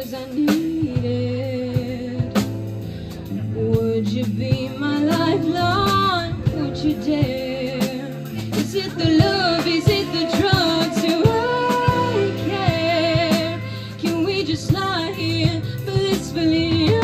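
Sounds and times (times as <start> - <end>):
drum kit with cymbals: 0.0 - 17.0
jazz band playing: 0.0 - 17.0.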